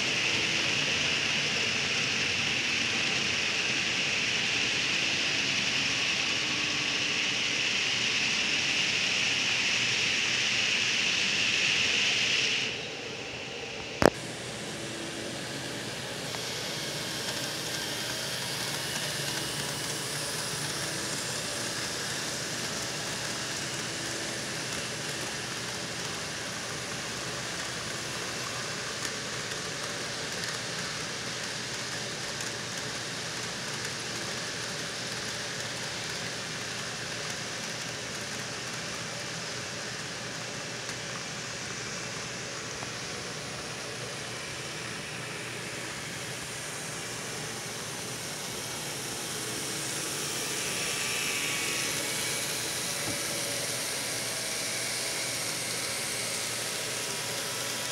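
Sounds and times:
model train rolling: 14.0s - 57.9s.

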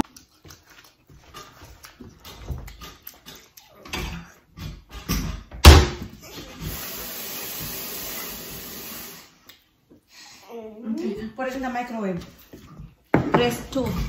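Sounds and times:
loud slam: 5.6s - 6.1s
steady hiss: 6.6s - 9.4s.

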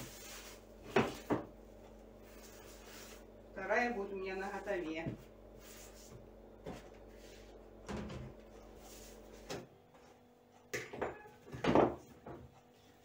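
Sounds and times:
low steady hum: 0.0s - 13.0s
cookware knocking and clattering: 10.8s - 12.1s.

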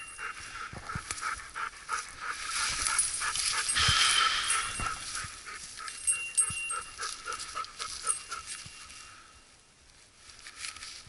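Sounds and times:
dog panting rapidly: 0.0s - 8.6s
brief rustle: 10.2s - 11.0s.

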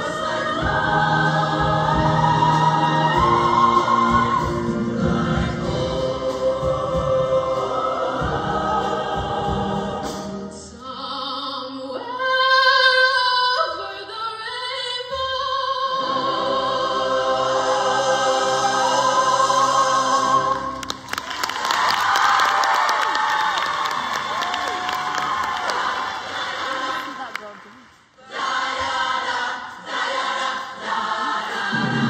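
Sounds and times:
choir singing sustained chords: 0.0s - 10.9s, 15.7s - 21.0s, 28.2s - 32.0s.

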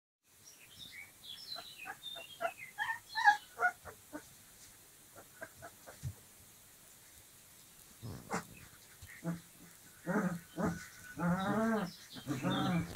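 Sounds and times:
puppies squealing and whining: 1.8s - 4.0s, 10.1s - 12.9s.

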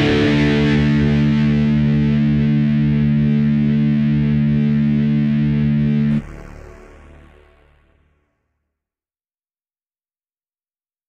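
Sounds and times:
symphonic metal music chord: 0.0s - 7.3s.

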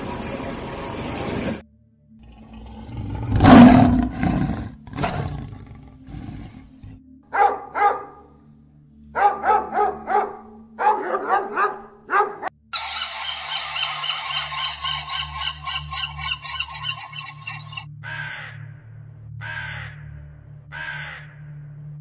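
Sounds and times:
lion grunts: 2.2s - 7.0s
lion roaring: 2.2s - 7.9s
dog barking: 7.3s - 8.3s, 9.2s - 12.5s
pelicans honking chatter: 12.8s - 18.5s, 20.7s - 21.2s.

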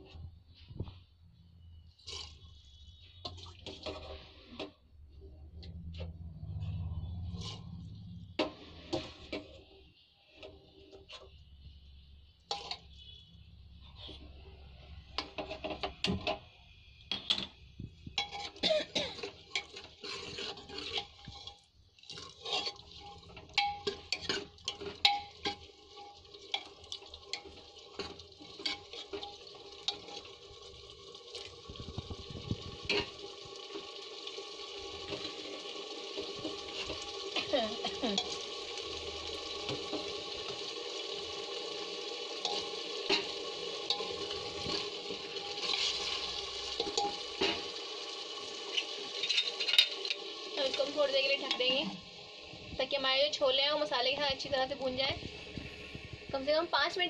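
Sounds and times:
chickpeas sizzling: 1.6s - 4.9s, 5.7s - 57.0s
metal ladle scraping a pot: 2.0s - 4.8s, 6.0s - 11.5s, 12.4s - 13.2s, 13.8s - 16.4s, 18.1s - 18.6s, 19.2s - 30.4s, 31.8s - 33.8s, 34.9s - 38.4s, 41.8s - 47.8s, 48.6s - 51.8s.

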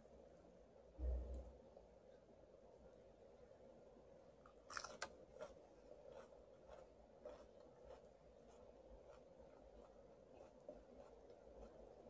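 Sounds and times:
crunchy chewing of leafy greens: 4.5s - 12.0s.

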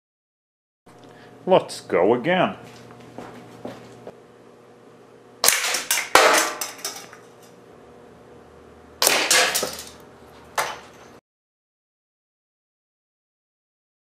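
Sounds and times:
pellet hitting plastic target: 5.4s - 6.8s, 9.0s - 9.9s.

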